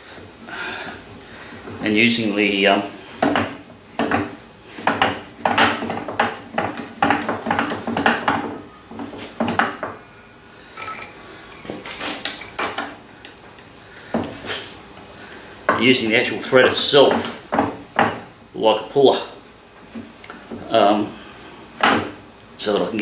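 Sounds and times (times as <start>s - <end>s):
ringing metal clinks: 10.8s - 13.6s
metal parts clinking and clanking: 10.8s - 13.7s.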